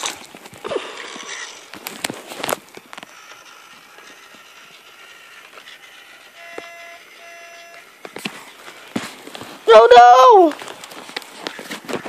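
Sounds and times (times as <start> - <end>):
toy train horn toots: 6.3 - 7.8.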